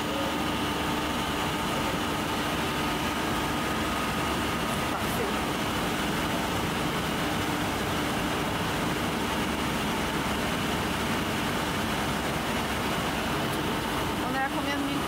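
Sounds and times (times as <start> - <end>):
workshop machinery humming: 0.0 - 15.0.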